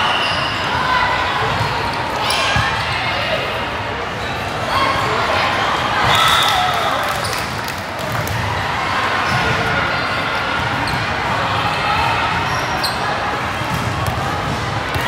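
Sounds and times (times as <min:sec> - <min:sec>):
sneakers squeaking on floor: 0:00.0 - 0:00.7, 0:10.6 - 0:15.0
crowd chatter: 0:00.0 - 0:15.0
volleyball hits and bounces: 0:13.6 - 0:15.0.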